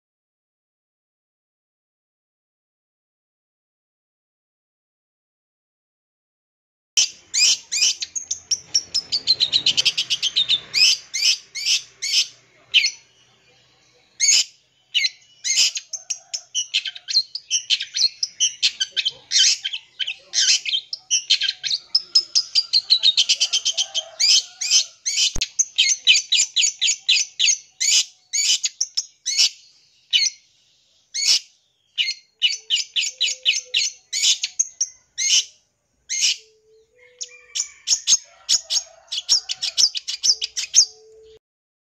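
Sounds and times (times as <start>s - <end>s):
bird singing varied song: 7.0s - 41.4s.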